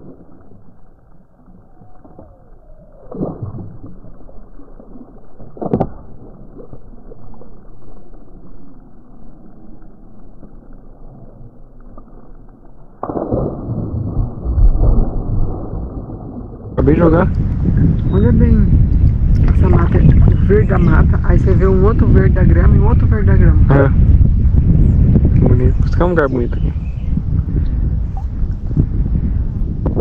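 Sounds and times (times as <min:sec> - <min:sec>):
water splashing: 0:00.0 - 0:22.9
deep muffled water sounds: 0:00.0 - 0:30.0.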